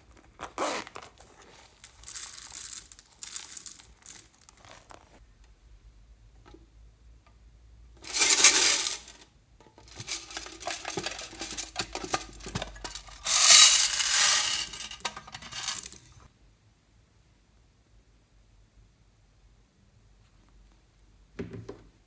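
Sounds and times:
beads rattling in a metal tin: 1.4s - 5.0s, 8.0s - 16.3s.

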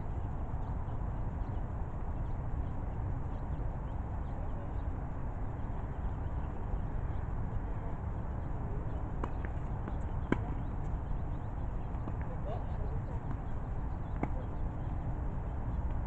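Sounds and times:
steady low rumble: 0.0s - 16.0s
tennis ball hit and bouncing: 9.2s - 10.9s, 14.1s - 14.6s.

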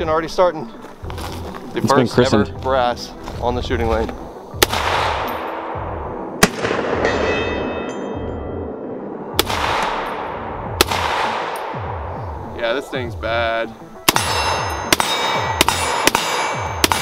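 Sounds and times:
rifle shots with echo: 4.6s - 7.8s, 9.3s - 12.1s, 14.0s - 17.0s
faint metallic ringing: 7.1s - 8.8s.

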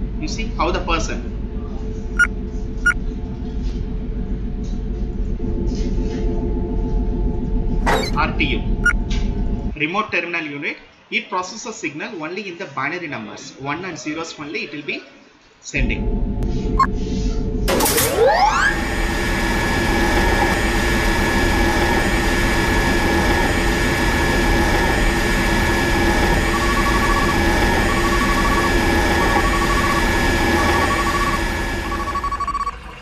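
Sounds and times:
electric water pump motor humming: 17.7s - 33.0s
high beeps: 25.7s - 33.0s.

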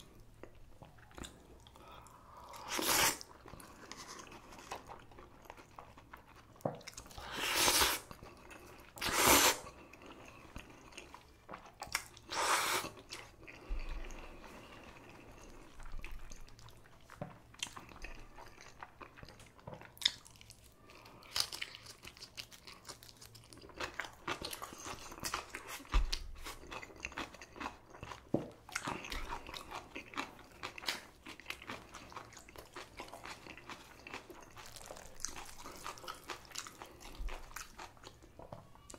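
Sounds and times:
wet crunchy chewing: 2.6s - 38.9s
noodle slurping: 9.0s - 9.7s.

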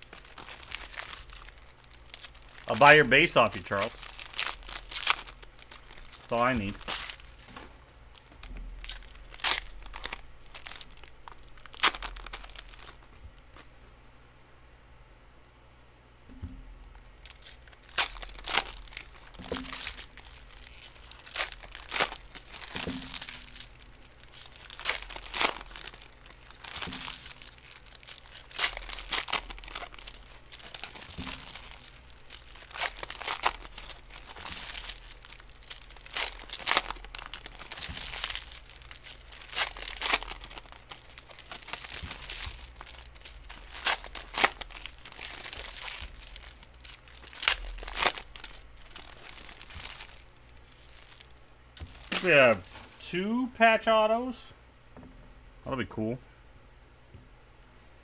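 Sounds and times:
foil wrappers crinkling and tearing: 0.0s - 13.7s, 16.8s - 53.1s
soft knocks: 54.9s - 55.4s.

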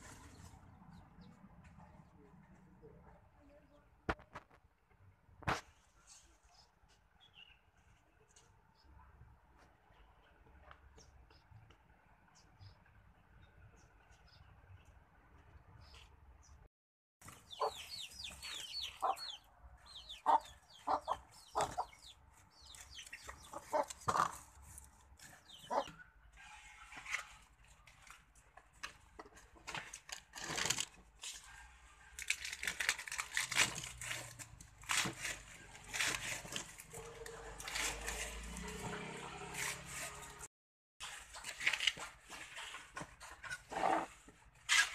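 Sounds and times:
chicks peeping: 17.3s - 24.4s, 25.3s - 26.0s
chickens clucking: 17.3s - 24.6s, 25.2s - 26.0s.

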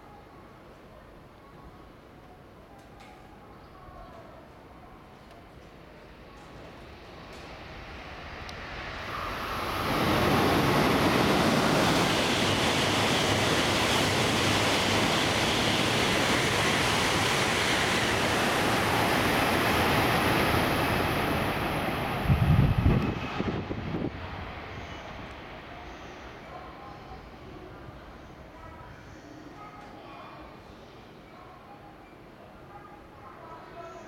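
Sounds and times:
high-speed train passing: 4.4s - 31.2s.

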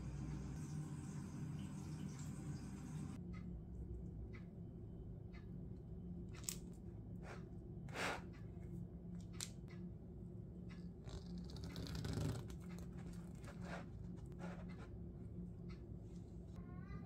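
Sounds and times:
faint low hum: 12.4s - 17.0s.

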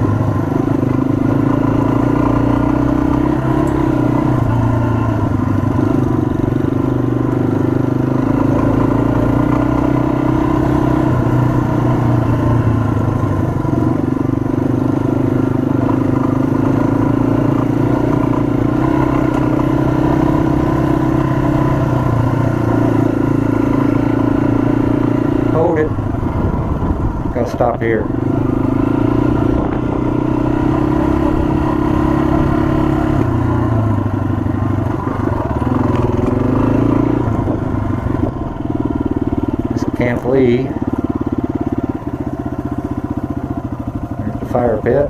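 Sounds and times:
motorcycle engine running: 0.0s - 45.0s.

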